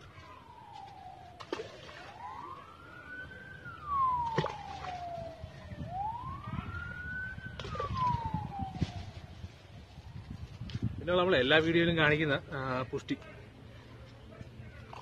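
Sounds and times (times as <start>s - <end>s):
siren wailing: 0.0s - 9.5s.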